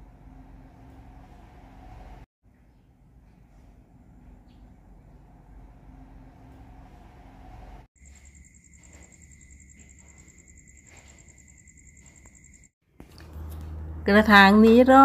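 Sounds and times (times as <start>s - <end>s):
low steady insect trill: 8.0s - 12.7s.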